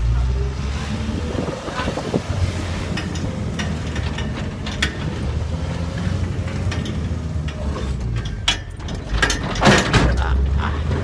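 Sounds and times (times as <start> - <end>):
clicking and rattling: 2.8 - 11.0
clatter bursts: 6.0 - 11.0.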